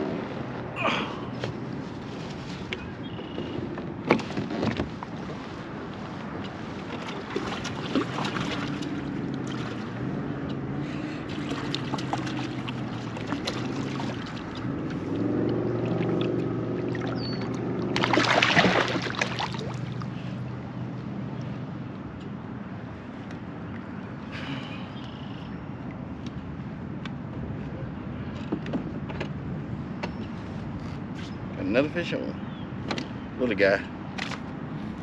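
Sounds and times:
water noise: 0.0 - 27.5
fish splashing: 7.0 - 10.0, 11.3 - 20.2.

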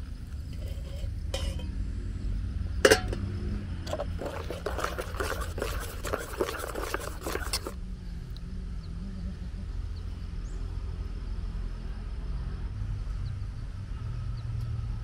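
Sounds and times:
spoon clinking in metal mug: 2.9 - 3.2.

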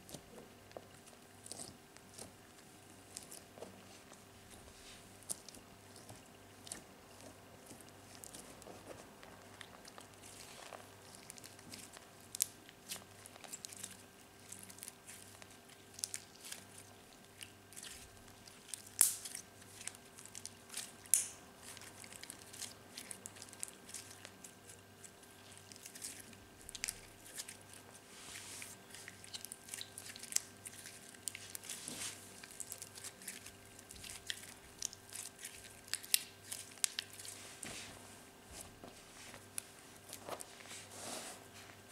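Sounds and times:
faint steady hum: 0.0 - 41.9.

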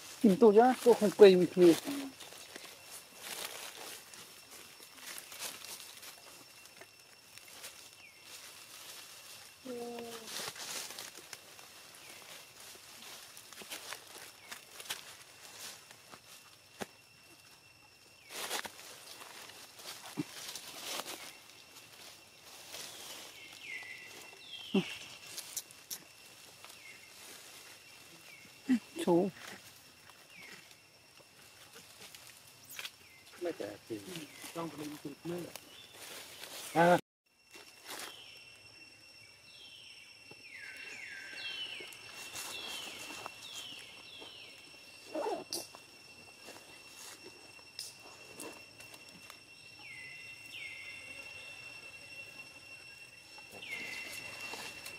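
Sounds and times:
faint steady high tone: 0.2 - 10.5, 37.6 - 54.9
steady high whine: 37.6 - 54.9
high animal calls: 45.0 - 45.7.

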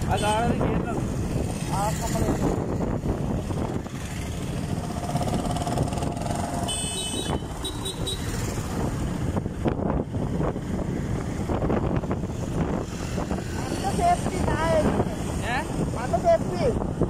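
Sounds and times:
wind and road noise: 0.0 - 17.0
motorcycle engine running: 1.4 - 9.2.

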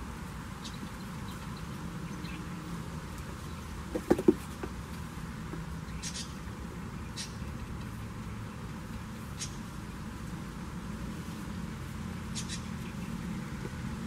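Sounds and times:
goat hooves knocking on wood: 3.9 - 4.8.

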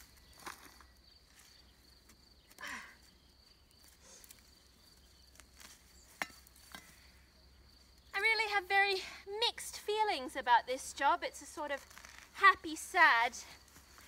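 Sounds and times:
hand tool scraping soil: 11.4 - 14.0.

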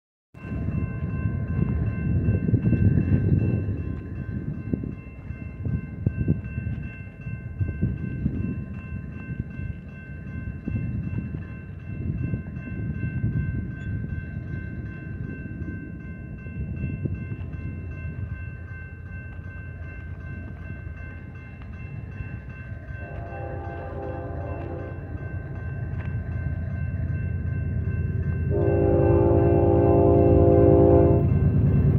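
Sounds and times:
distant train horn: 23.0 - 25.3, 28.5 - 31.5.

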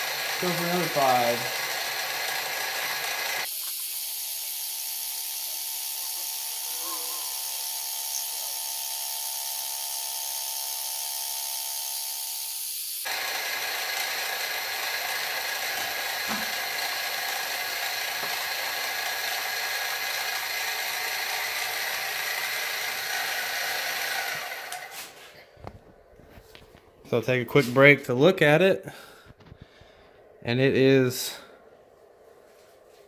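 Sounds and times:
mill machine hum: 0.0 - 3.7, 13.1 - 27.1
flycutter cutting metal: 0.0 - 25.2.

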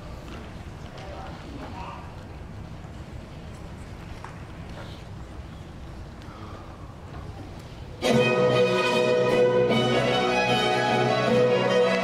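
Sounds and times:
orchestral strings melody: 8.0 - 12.0.

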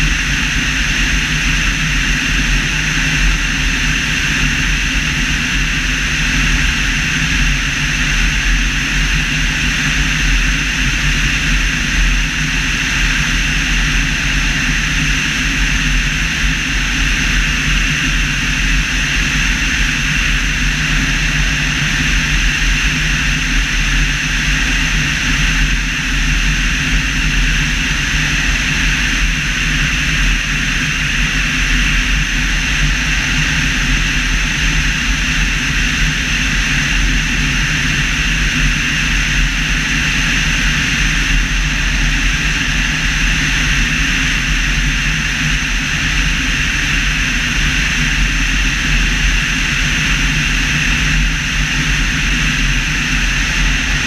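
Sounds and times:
light aircraft engine drone: 0.0 - 54.0
rushing airflow: 49.5 - 54.0.

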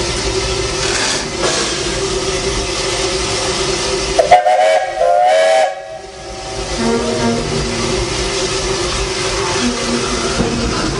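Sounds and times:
locomotive hiss and rumble: 0.0 - 10.9
steam locomotive whistle: 4.2 - 7.5.

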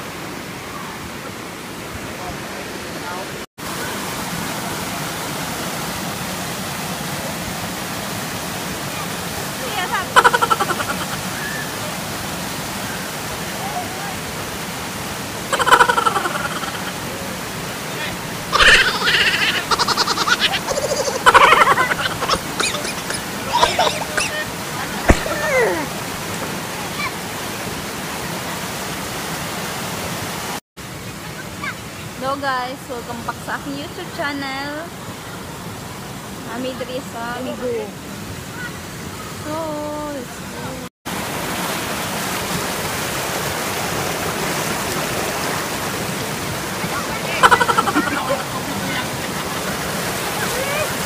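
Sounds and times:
waterfall and stream rushing: 0.0 - 51.0
voices: 8.8 - 12.1, 15.5 - 27.5, 31.1 - 35.5, 46.6 - 51.0.

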